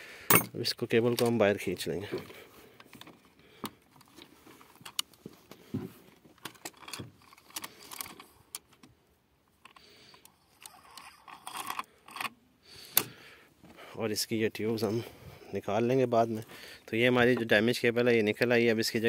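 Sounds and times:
cable rustling: 0:01.0 - 0:08.9.

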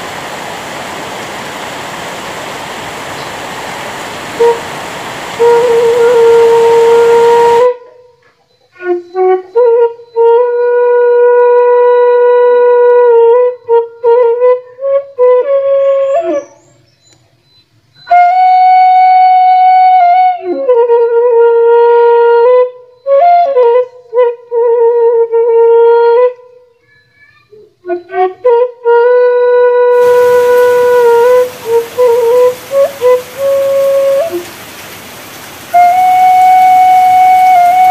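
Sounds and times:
rain hiss: 0:00.0 - 0:07.7, 0:29.9 - 0:37.9
solo flute melody: 0:04.4 - 0:04.7, 0:05.3 - 0:16.8, 0:18.0 - 0:26.6, 0:28.0 - 0:37.9.

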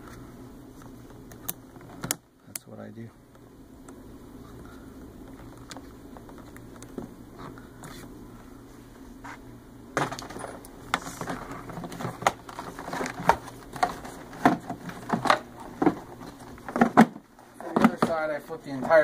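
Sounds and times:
tools and metal parts clinking: 0:10.0 - 0:11.3.

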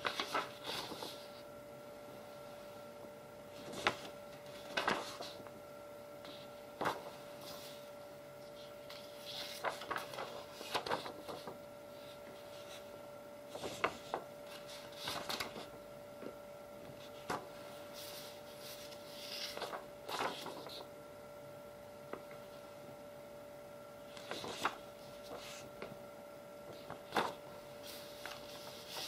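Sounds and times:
paper rustling and flicking: 0:00.0 - 0:01.4, 0:03.5 - 0:05.5, 0:06.2 - 0:15.8, 0:16.9 - 0:20.9, 0:24.1 - 0:26.0, 0:26.6 - 0:29.0
faint hum: 0:00.0 - 0:29.0.

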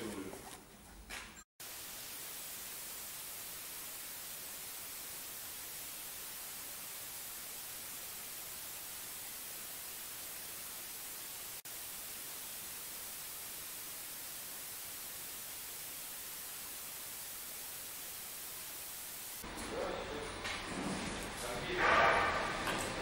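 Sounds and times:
static hiss: 0:01.6 - 0:20.4.

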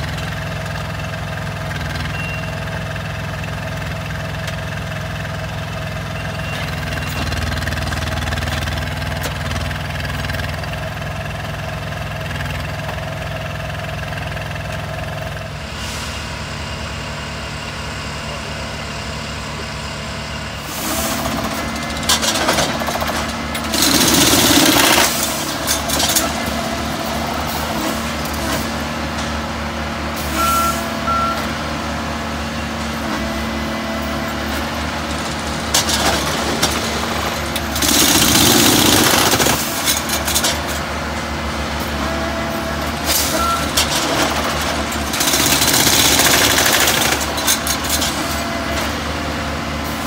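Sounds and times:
machine engines running: 0:16.8 - 0:31.6, 0:32.4 - 0:50.0.

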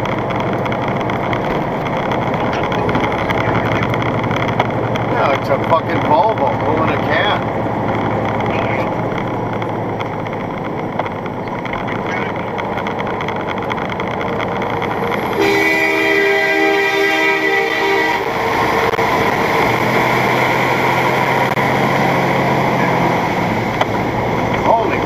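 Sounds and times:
engine and tyres rumbling: 0:00.0 - 0:25.0
truck air horn blast: 0:15.3 - 0:19.6.

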